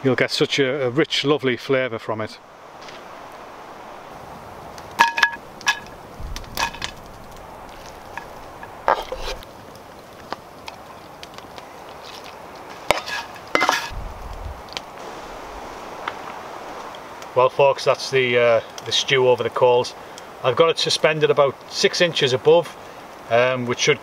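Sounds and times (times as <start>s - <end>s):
utensils knocking and clinking on pot: 5.0s - 6.0s, 6.6s - 7.0s, 12.9s - 13.9s.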